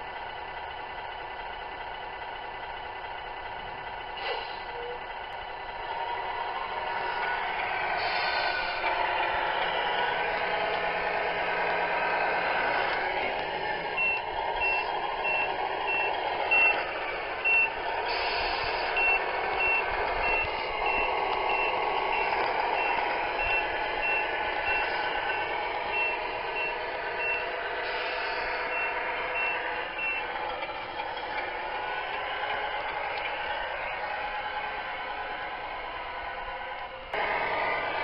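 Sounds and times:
simulated truck engine sound: 0:00.0 - 0:38.0
reversing beeper: 0:12.4 - 0:31.3.

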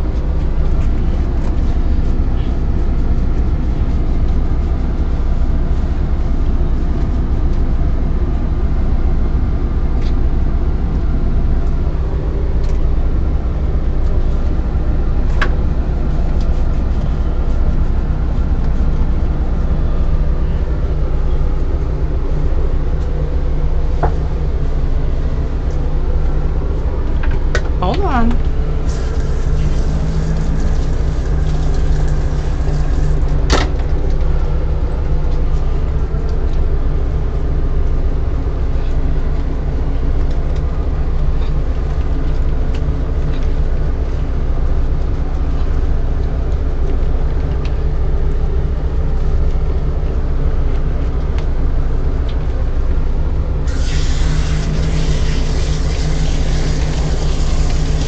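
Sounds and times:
low motor hum: 0:00.0 - 0:58.0
bath sprayer hissing water: 0:53.7 - 0:58.0.

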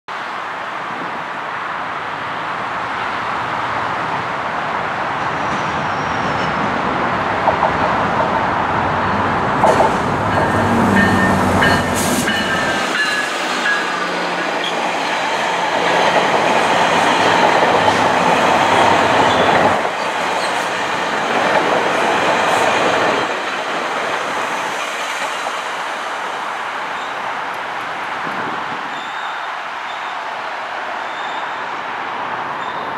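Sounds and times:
train rumbling past: 0:03.5 - 0:32.9.

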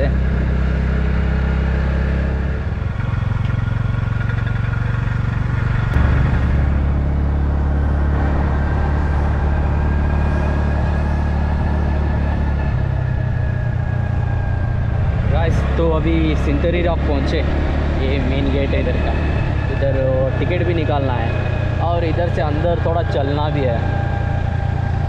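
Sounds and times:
small motorbike engine running: 0:00.0 - 0:12.8.

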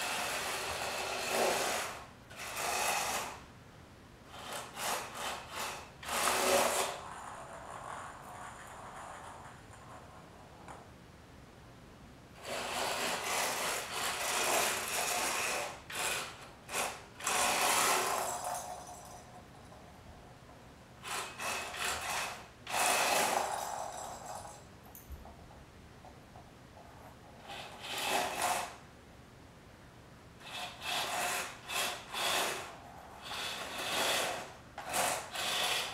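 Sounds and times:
toy car motors whirring: 0:00.0 - 0:03.4, 0:04.3 - 0:08.2, 0:12.4 - 0:18.5, 0:21.0 - 0:24.0, 0:27.4 - 0:28.8, 0:30.4 - 0:35.9
wheels rolling on wooden floor: 0:04.4 - 0:10.9, 0:12.4 - 0:19.7, 0:21.0 - 0:28.8, 0:30.4 - 0:35.9.

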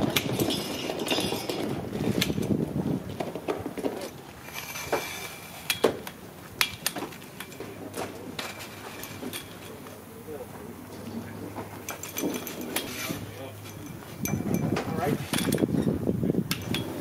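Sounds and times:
metal clicks and knocks of frame: 0:05.7 - 0:09.8.

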